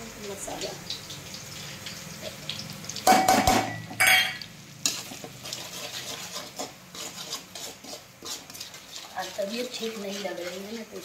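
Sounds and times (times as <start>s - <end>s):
food frying in oil: 0.0s - 11.0s
spatula scraping metal pan: 3.4s - 11.0s.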